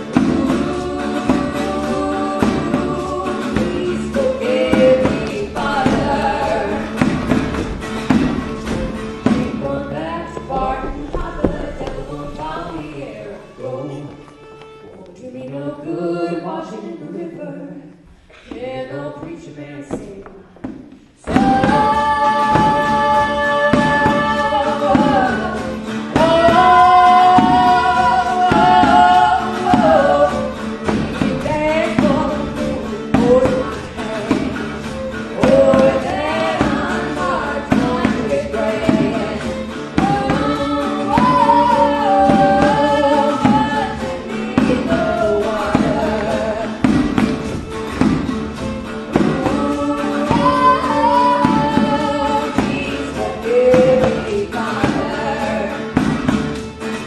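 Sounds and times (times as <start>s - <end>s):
voices singing long notes: 0.0s - 7.5s, 21.3s - 47.4s, 49.0s - 56.0s.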